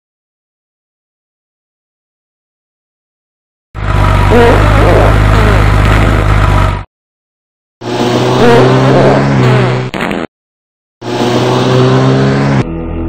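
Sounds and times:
loud fart sounds: 0:04.3 - 0:06.3, 0:08.0 - 0:10.3.

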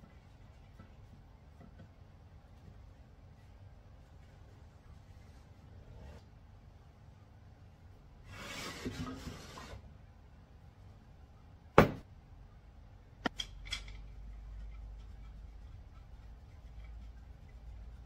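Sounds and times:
loud wooden knock: 0:11.8 - 0:12.0.

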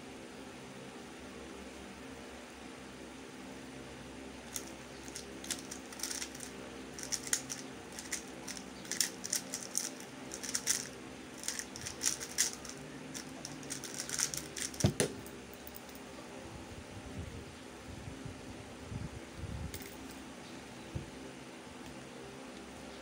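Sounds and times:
electric fan humming: 0:00.0 - 0:23.0
speed cube clicking: 0:04.5 - 0:15.1
cube knocking on table: 0:14.8 - 0:15.2.

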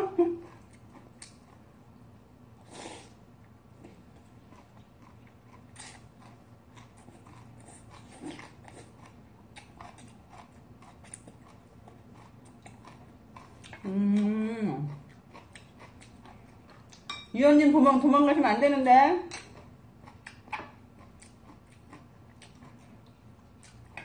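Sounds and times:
slurping and chewing: 0:02.6 - 0:03.2, 0:03.8 - 0:17.0, 0:19.5 - 0:24.0
person humming: 0:13.8 - 0:14.9.

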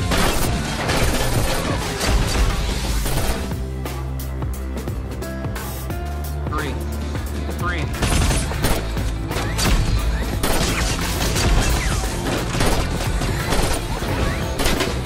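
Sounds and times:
gunfire bursts: 0:00.0 - 0:03.6, 0:08.0 - 0:15.0
driving action music score: 0:00.0 - 0:15.0.

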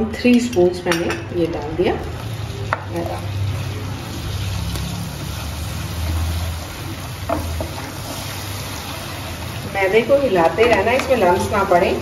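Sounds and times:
spatula scraping a pan: 0:04.3 - 0:09.5.

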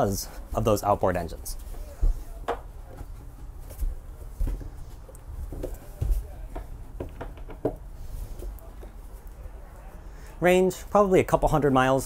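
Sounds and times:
footsteps on a deck: 0:01.4 - 0:10.0.

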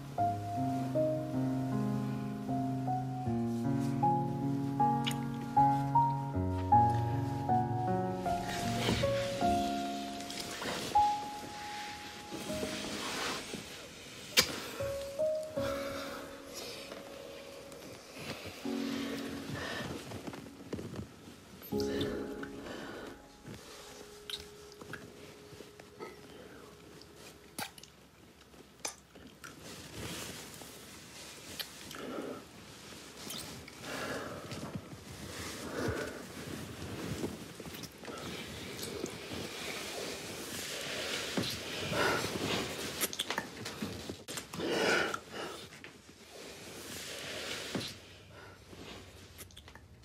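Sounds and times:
soft breathing: 0:08.2 - 0:24.3, 0:33.8 - 0:43.0
heavy breathing: 0:21.8 - 0:23.9
wet lip smacks of kissing: 0:27.6 - 0:27.9.

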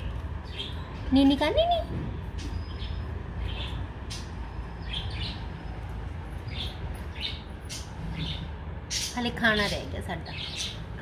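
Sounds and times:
budgerigars chirping: 0:06.5 - 0:10.9.

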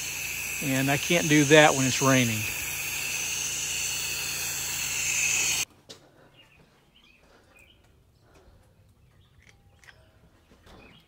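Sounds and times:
pressure washer spraying water: 0:00.0 - 0:05.6.

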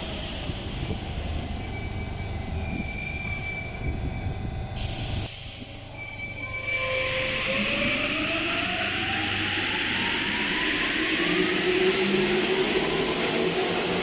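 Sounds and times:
high squealing tones: 0:05.8 - 0:08.7.

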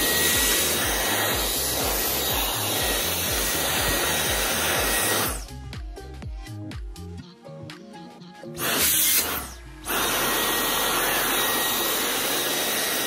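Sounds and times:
vacuum cleaner running: 0:00.0 - 0:05.5, 0:08.6 - 0:13.0.

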